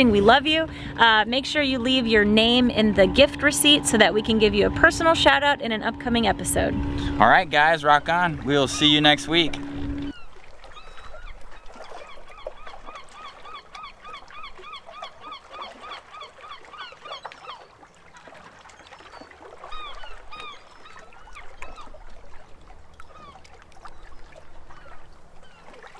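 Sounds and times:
bird calling rapidly: 7.1s - 17.7s, 19.1s - 22.0s.

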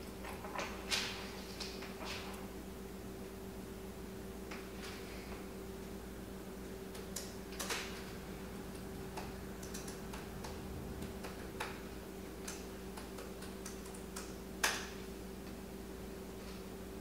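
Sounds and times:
faint steady hum: 0.0s - 17.0s
laptop keys clicking: 8.7s - 11.8s, 12.4s - 14.8s.

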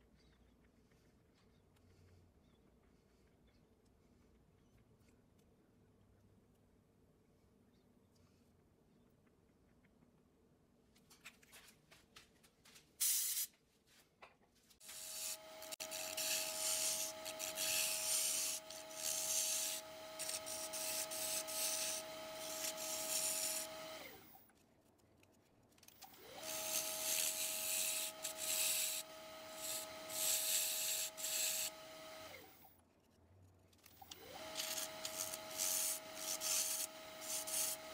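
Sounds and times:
gouge scraping wood: 14.8s - 24.0s, 26.4s - 32.3s, 34.4s - 37.9s
wood lathe motor whine: 14.8s - 24.4s, 26.1s - 32.6s, 34.0s - 37.9s.

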